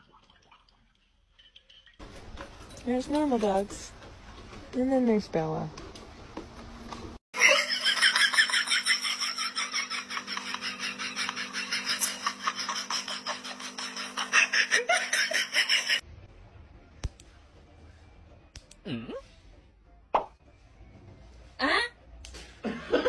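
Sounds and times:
loud rapid laughter: 7.4 - 16.0.

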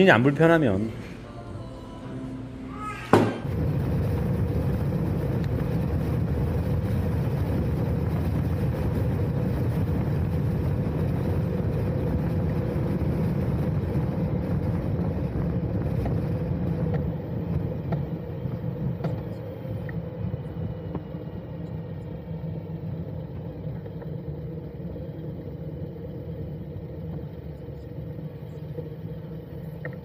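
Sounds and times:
road and wind noise: 3.5 - 23.1.

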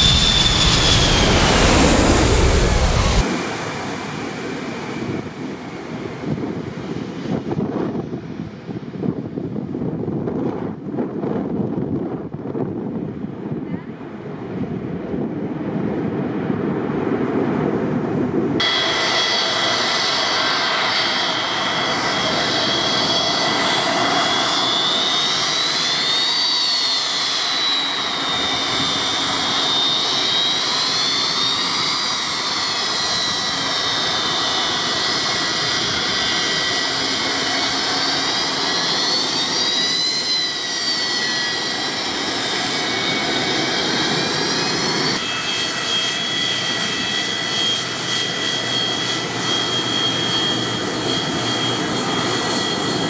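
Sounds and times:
low rushing noise: 0.0 - 6.7
jet engines whining: 0.0 - 11.9, 12.9 - 53.0.

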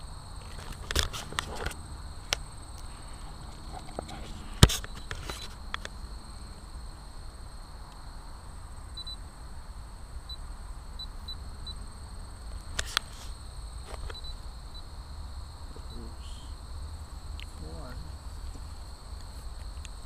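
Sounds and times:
camera handling noise: 0.4 - 2.5, 3.5 - 6.0, 12.7 - 14.2
sharp clicks: 12.6 - 14.3.

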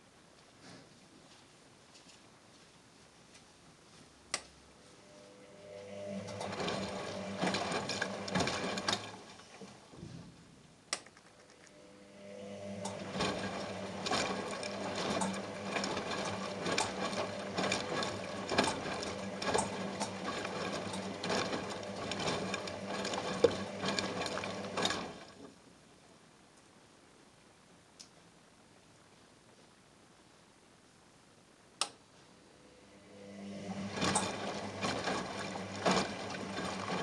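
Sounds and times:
washing machine drum motor humming: 5.2 - 10.1, 11.7 - 25.7, 32.6 - 37.0
sharp click: 10.9 - 11.8.

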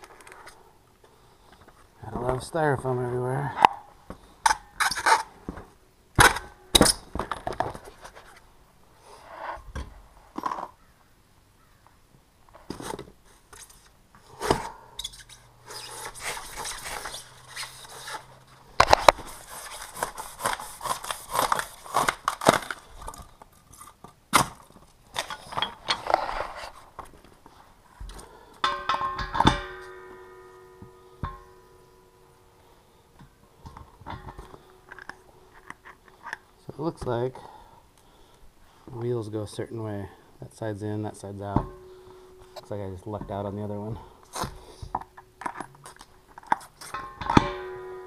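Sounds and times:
cardboard and styrofoam rustling: 15.7 - 28.1.

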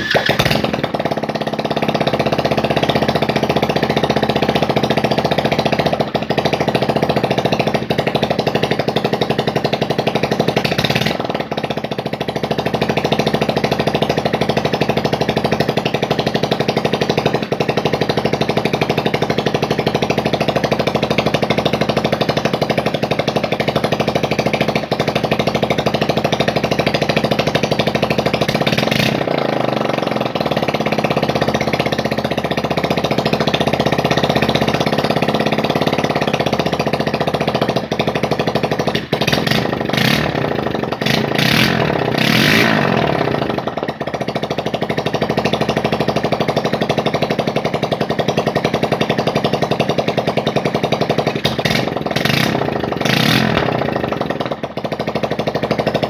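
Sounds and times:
chainsaw engine running: 0.0 - 5.9, 39.2 - 43.8, 51.2 - 55.7.

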